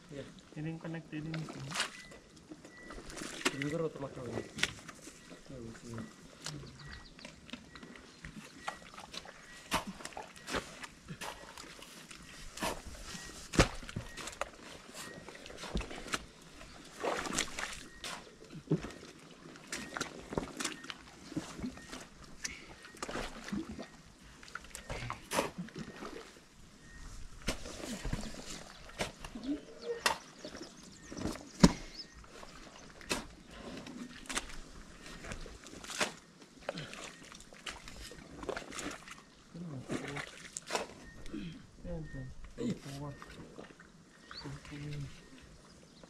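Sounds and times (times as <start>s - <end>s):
rubber boots squelching in mud: 7.6s - 23.9s, 27.3s - 39.2s.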